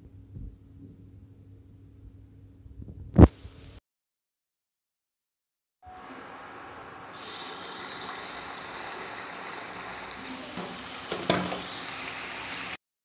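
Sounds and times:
food sizzling in hot oil: 5.9 - 12.8.

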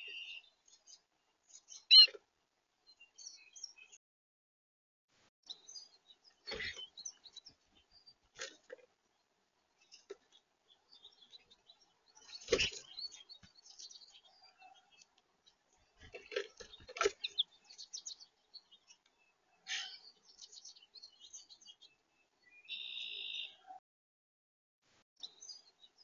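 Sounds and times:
small birds chirping: 0.0 - 4.0, 5.4 - 23.8, 25.2 - 26.0
wings fluttering: 12.3 - 13.0.

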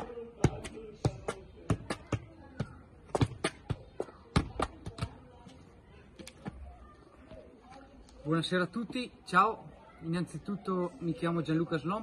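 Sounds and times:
soccer ball thuds: 0.0 - 5.3.

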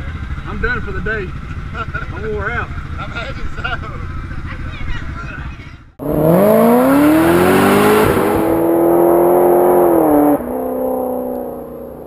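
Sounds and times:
engine revving: 6.0 - 12.0.

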